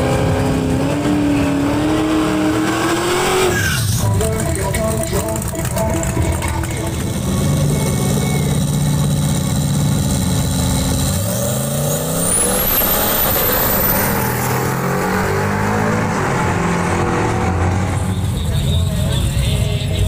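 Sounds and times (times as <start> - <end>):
high whine: 0.0 - 11.2
pickup truck engines revving: 0.0 - 20.0.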